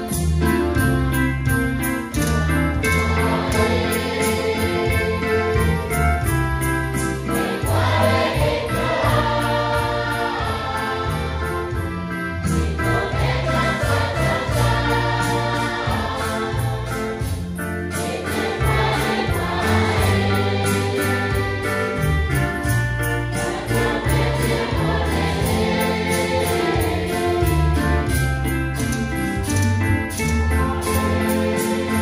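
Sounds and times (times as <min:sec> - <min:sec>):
group singing a hymn: 0:00.0 - 0:28.3, 0:30.5 - 0:32.0
instrumental backing with bass: 0:00.0 - 0:32.0.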